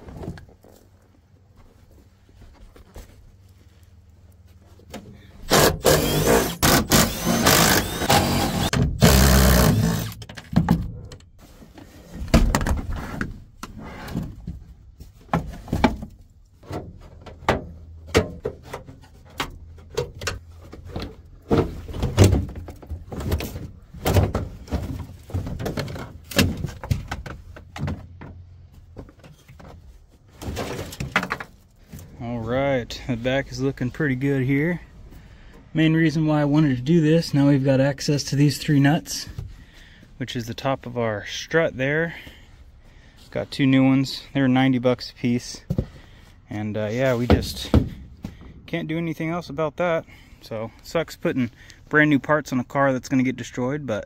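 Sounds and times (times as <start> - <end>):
car parts knocking and clunking: 4.8 - 32.1, 45.6 - 46.2, 47.2 - 48.8.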